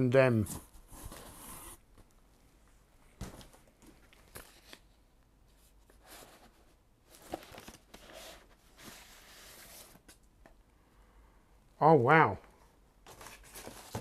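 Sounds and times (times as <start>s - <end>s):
cardboard package rustling: 6.0s - 10.2s, 13.0s - 14.0s.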